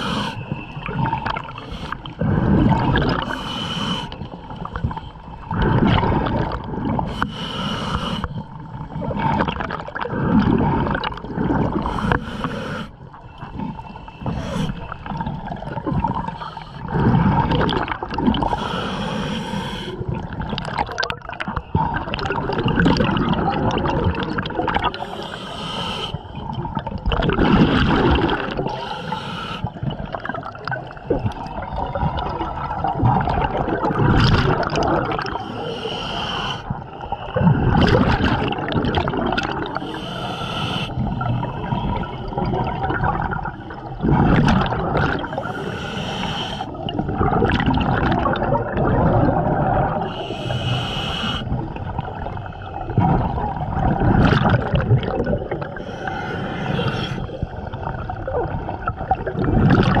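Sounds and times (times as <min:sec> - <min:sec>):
regulator inhale hiss: 0:00.0 - 0:00.6, 0:01.5 - 0:02.2, 0:03.2 - 0:05.3, 0:07.1 - 0:08.5, 0:11.8 - 0:13.0, 0:13.9 - 0:15.1, 0:18.4 - 0:20.0, 0:25.0 - 0:26.3, 0:28.7 - 0:29.9, 0:35.3 - 0:37.4, 0:39.8 - 0:42.3, 0:45.3 - 0:46.8, 0:50.0 - 0:51.6, 0:55.7 - 0:57.7
exhaled air bubbling: 0:00.0 - 1:00.0.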